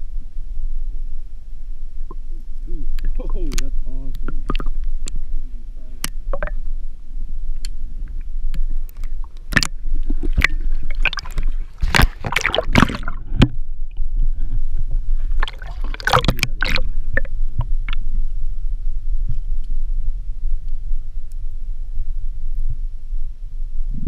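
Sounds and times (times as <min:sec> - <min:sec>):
underwater sloshing and gurgling: 0:00.0 - 0:24.0
water splashing: 0:08.9 - 0:13.6, 0:15.3 - 0:17.3.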